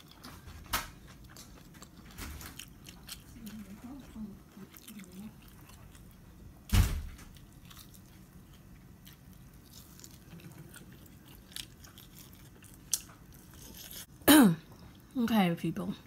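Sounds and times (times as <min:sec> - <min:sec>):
person chewing food: 0:00.0 - 0:06.6, 0:07.2 - 0:15.1
loud thump: 0:06.7 - 0:07.2.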